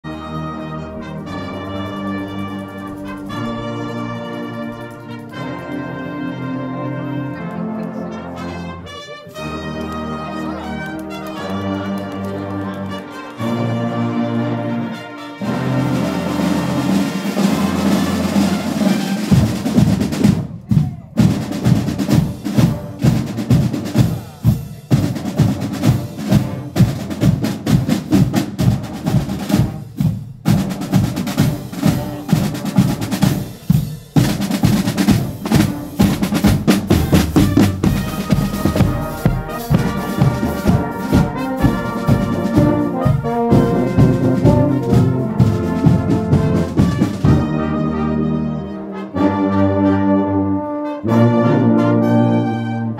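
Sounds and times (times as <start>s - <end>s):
brass chord: 0.0s - 19.7s, 30.7s - 52.9s
snare and bass drums: 15.8s - 47.7s.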